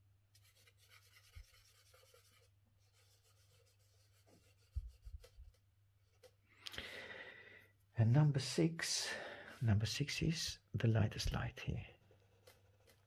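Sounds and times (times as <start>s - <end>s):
charcoal scratching on paper: 0.4s - 6.4s, 12.0s - 13.0s.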